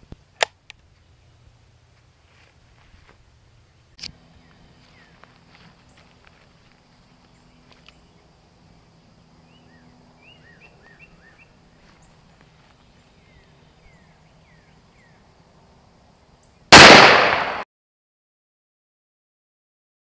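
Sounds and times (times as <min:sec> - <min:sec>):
loud gunshot: 0:16.7 - 0:17.6.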